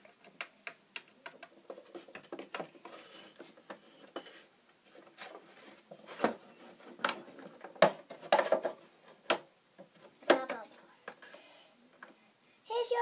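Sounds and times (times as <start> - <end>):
toy figures knocking on wooden shelves: 7.0 - 11.2.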